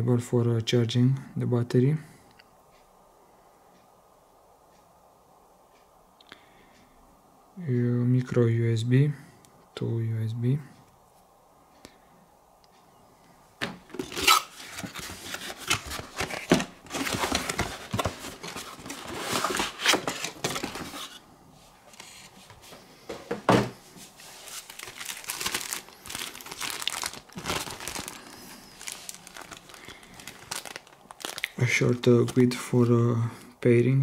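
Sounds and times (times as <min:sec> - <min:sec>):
packaging crinkling and rustling: 0:13.8 - 0:21.2, 0:21.9 - 0:22.6, 0:24.0 - 0:32.8.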